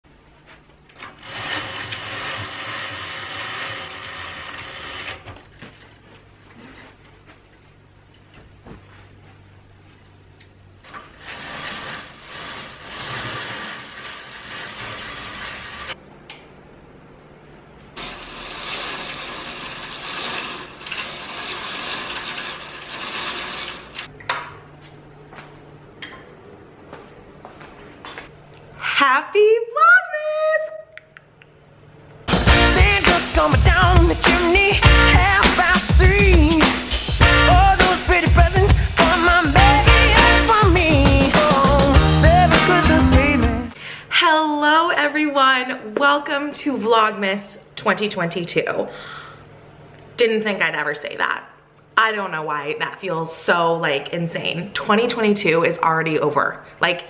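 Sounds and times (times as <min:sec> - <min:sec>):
curtain rings scraping along rod: 0:01.0 - 0:05.3, 0:10.8 - 0:16.0, 0:18.0 - 0:24.1
roller shade ratcheting rasp: 0:01.0 - 0:05.4, 0:10.8 - 0:16.0, 0:18.0 - 0:24.1.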